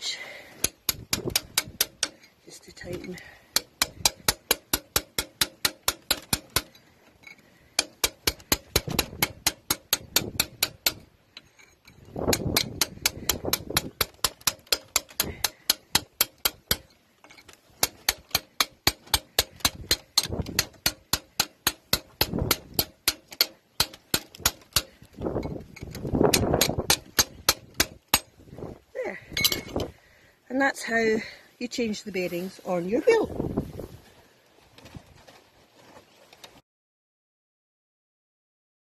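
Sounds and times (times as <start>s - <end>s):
hammer striking steel punch: 7.8s - 11.0s, 17.8s - 24.9s, 26.3s - 28.3s.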